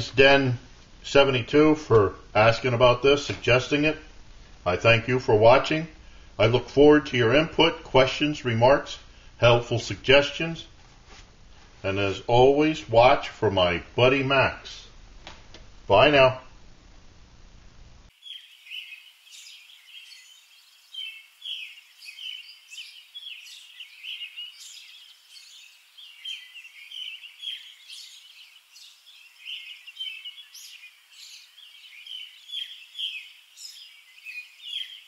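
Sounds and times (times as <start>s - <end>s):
birds chirping and singing: 18.2s - 35.0s.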